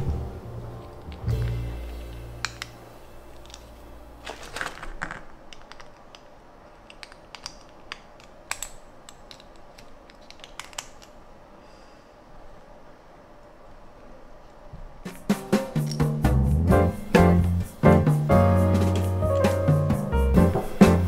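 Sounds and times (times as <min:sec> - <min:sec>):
plastic bag crinkling: 0:03.3 - 0:07.9.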